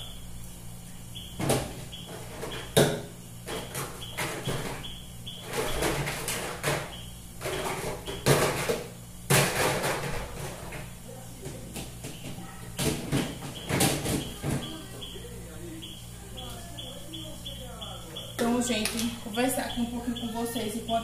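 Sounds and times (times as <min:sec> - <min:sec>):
containers knocking and clattering: 0:05.4 - 0:14.8.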